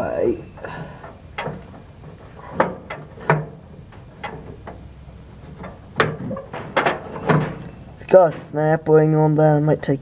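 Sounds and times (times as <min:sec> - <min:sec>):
metal clinks and knocks: 0:00.5 - 0:08.0.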